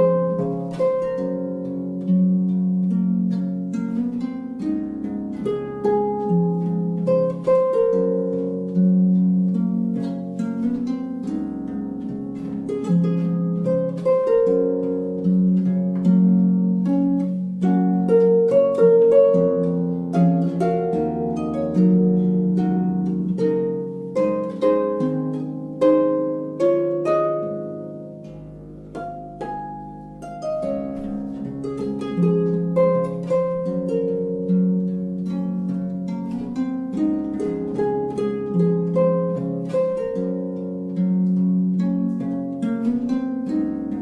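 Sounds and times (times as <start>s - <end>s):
plucked string melody: 0.0s - 44.0s.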